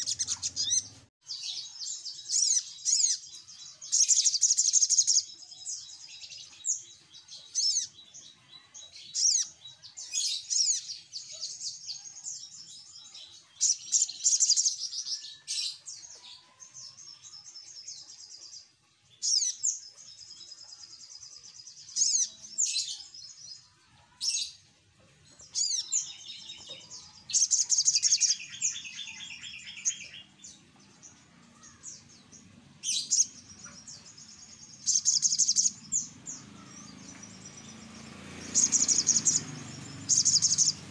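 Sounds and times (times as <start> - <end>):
bird chirping and trilling: 0.0 - 40.9
low rattling bird trill: 38.4 - 40.9.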